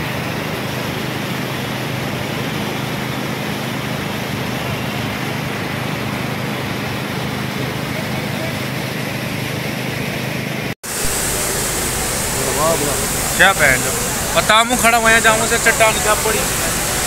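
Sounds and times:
fast-flowing water roaring: 0:00.0 - 0:17.0
low hum: 0:10.9 - 0:17.0.

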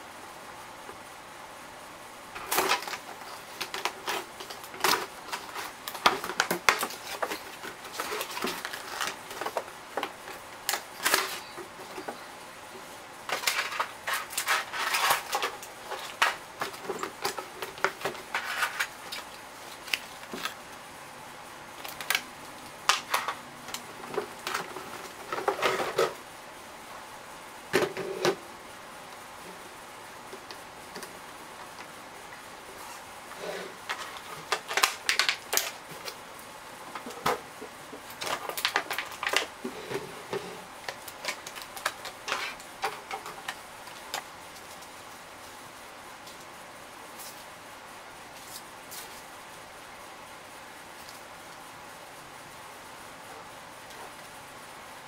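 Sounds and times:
cardboard rustling and scraping: 0:02.4 - 0:12.3, 0:13.3 - 0:20.6, 0:24.0 - 0:26.2, 0:36.9 - 0:44.9.

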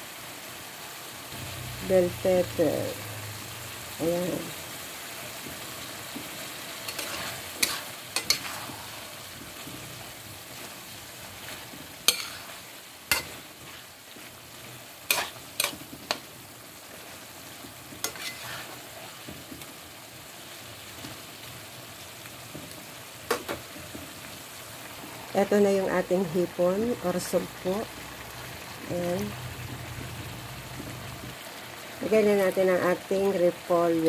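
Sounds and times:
sizzling hiss: 0:00.0 - 0:34.0
spatula stirring vegetables in pan: 0:02.5 - 0:25.2, 0:29.5 - 0:34.0.

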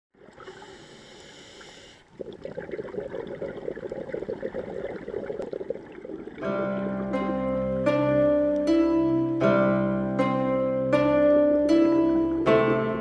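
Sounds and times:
underwater gurgling and bubbling: 0:00.2 - 0:07.7
steady hiss: 0:00.4 - 0:02.2
plucked-string music: 0:06.4 - 0:13.0.

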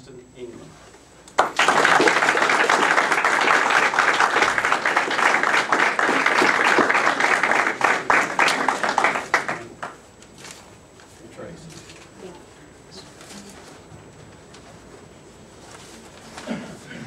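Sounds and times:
audience applauding: 0:01.4 - 0:10.0.

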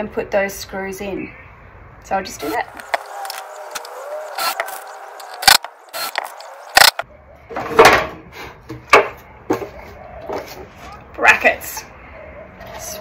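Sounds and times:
cordless drill running: 0:02.4 - 0:07.0
knocks of wood and tools: 0:07.6 - 0:10.7.

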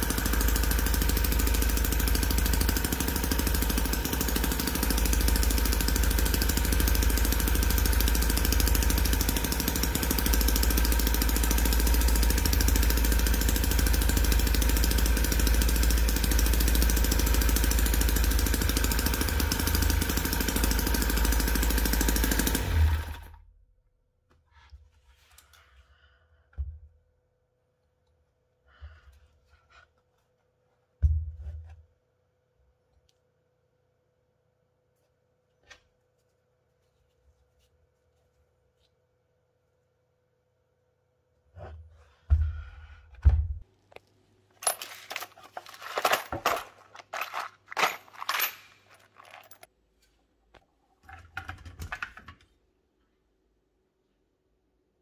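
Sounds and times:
metal fittings clinking in plastic tub: 0:44.6 - 0:49.7.

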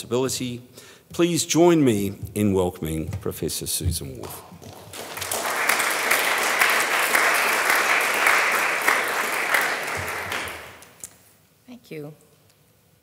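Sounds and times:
audience applauding: 0:04.6 - 0:11.1.

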